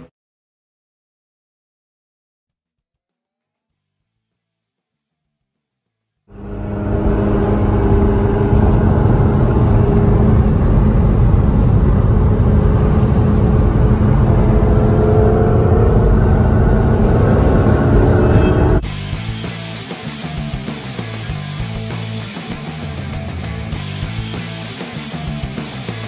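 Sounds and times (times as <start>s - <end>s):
car engine running: 6.3s - 18.8s
road rumble: 6.3s - 18.8s.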